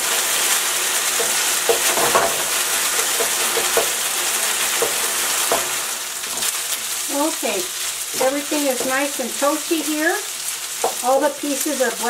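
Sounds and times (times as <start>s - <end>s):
chicken sizzling in hot oil: 0.0s - 12.0s
utensil knocking against wok: 1.1s - 4.0s, 4.7s - 6.5s, 10.8s - 11.0s.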